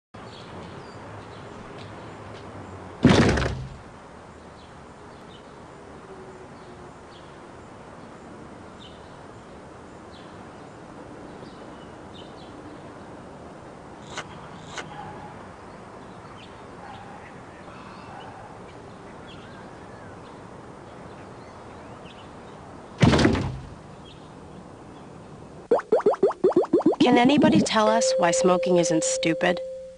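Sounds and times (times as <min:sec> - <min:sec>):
loud heavy thuds: 0:03.0 - 0:03.9, 0:23.0 - 0:23.8.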